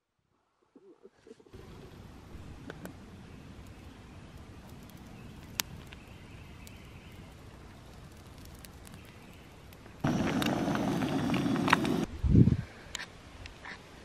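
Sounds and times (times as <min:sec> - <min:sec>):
campfire crackling: 0:01.5 - 0:12.1
stick snapping in fire: 0:04.6 - 0:06.0.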